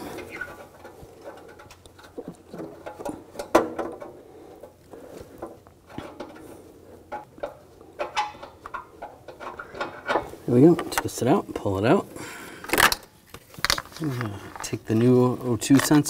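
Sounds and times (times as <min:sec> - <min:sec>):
metal clicking and scraping: 0:00.0 - 0:04.8, 0:05.4 - 0:11.1.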